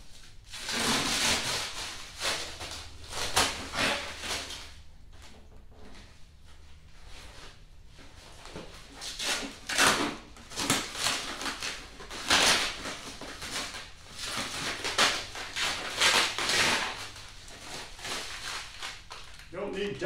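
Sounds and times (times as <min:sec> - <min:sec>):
plastic packaging crinkling: 0:08.9 - 0:20.0.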